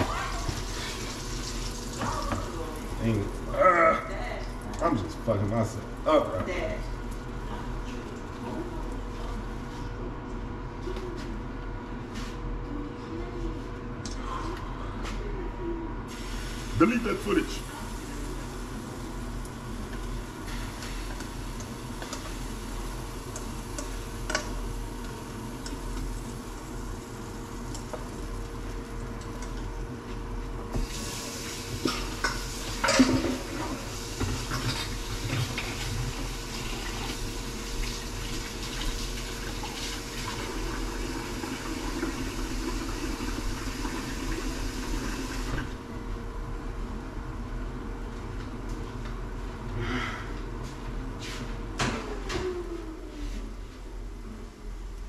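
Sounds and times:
low appliance hum: 0:00.0 - 0:55.0
dishes clinking: 0:31.9 - 0:33.4.

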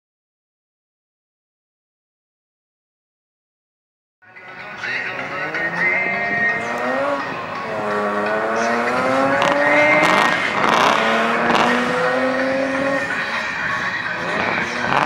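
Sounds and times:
car engine revving: 0:04.9 - 0:15.0.

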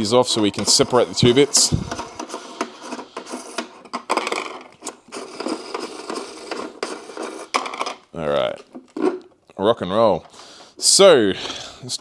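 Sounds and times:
plastic parts clicking and knocking: 0:00.6 - 0:09.4.

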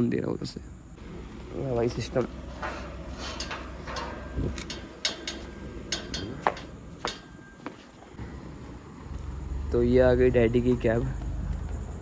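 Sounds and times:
low background hum: 0:00.0 - 0:12.0
sharp clicks and knocks: 0:02.2 - 0:07.8.

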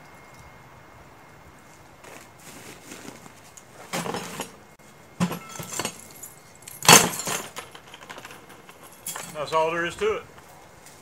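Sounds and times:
metal gear clinking and rattling: 0:05.2 - 0:09.8.

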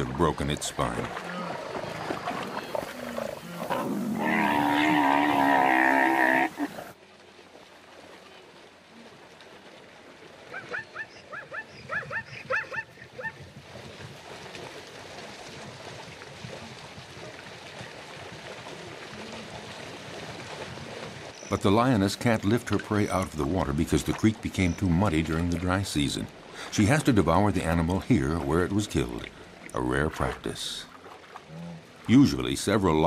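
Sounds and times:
wavering animal bellow: 0:03.0 - 0:06.9.

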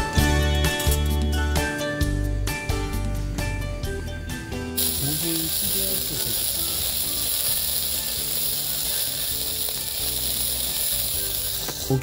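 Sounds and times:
sausages sizzling on grill: 0:04.3 - 0:12.0.

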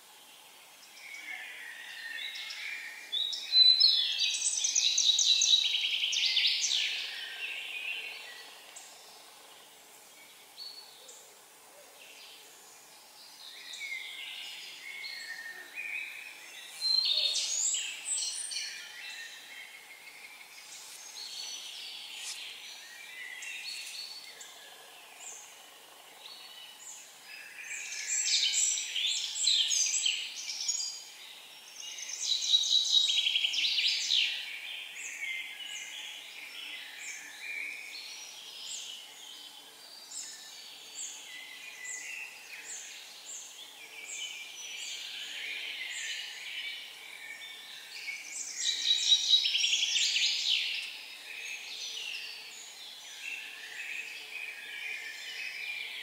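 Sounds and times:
footsteps on dry forest path: 0:20.6 - 0:22.8.

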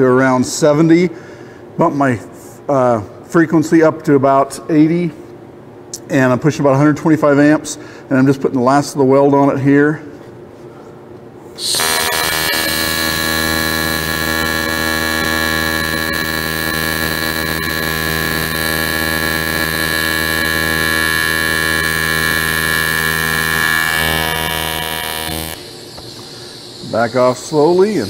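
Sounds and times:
welding arc buzz: 0:11.6 - 0:28.0.

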